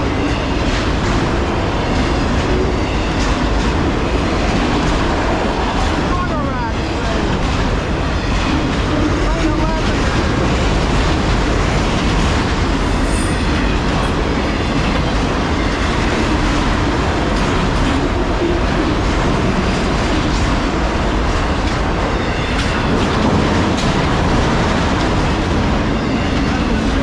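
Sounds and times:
steel train wheels on rails: 0:00.0 - 0:27.0.

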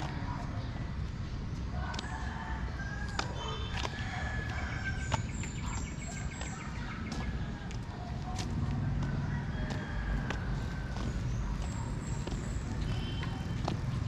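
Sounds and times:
rooster crowing: 0:01.8 - 0:05.1, 0:09.0 - 0:11.0.

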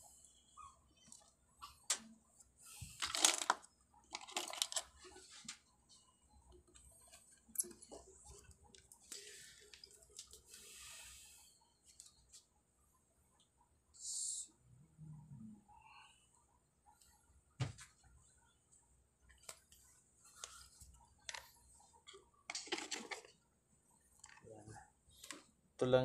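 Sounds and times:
handling noise rustling and scraping: 0:01.0 - 0:06.0, 0:19.3 - 0:23.4.

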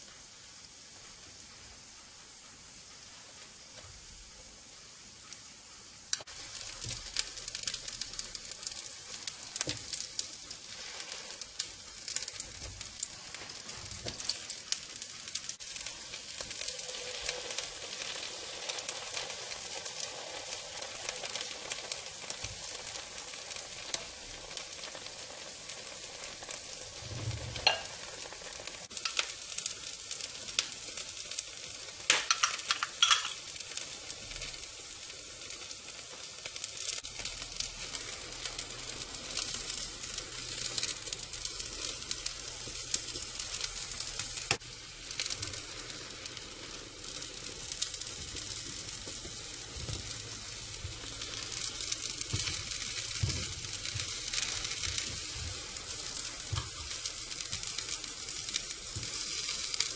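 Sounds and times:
omelette sizzling in oil: 0:00.0 - 0:59.9
spatulas clicking and scraping pan: 0:32.1 - 0:33.6.

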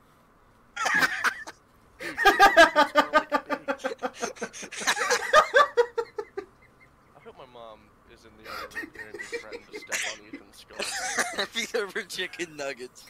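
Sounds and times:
loud laughter: 0:00.8 - 0:06.9, 0:08.5 - 0:12.4.

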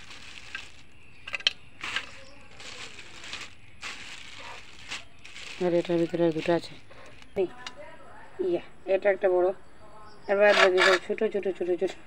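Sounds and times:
woman talking: 0:05.6 - 0:06.8, 0:07.4 - 0:12.0.

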